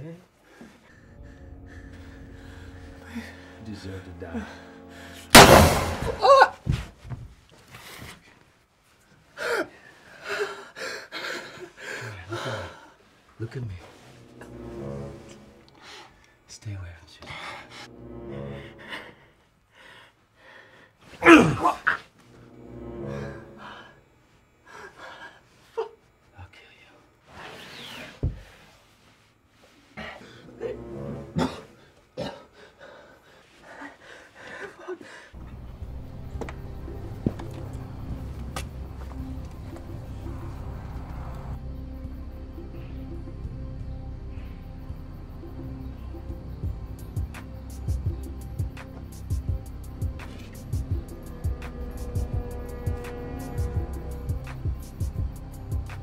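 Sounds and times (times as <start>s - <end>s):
man sobbing and gasping: 9.4s - 13.0s, 30.0s - 35.4s
man coughing and groaning: 21.2s - 22.0s, 30.6s - 32.6s.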